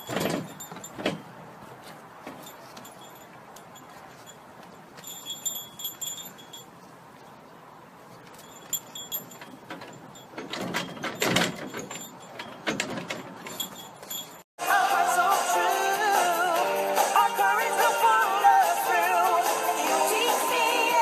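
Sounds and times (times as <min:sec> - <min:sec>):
metallic clattering: 0:00.0 - 0:06.7, 0:08.2 - 0:14.4
light metallic jingling: 0:00.0 - 0:14.5.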